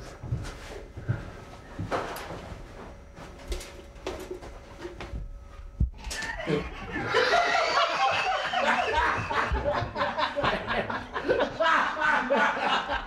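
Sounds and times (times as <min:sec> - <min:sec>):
people laughing: 0:06.0 - 0:13.0.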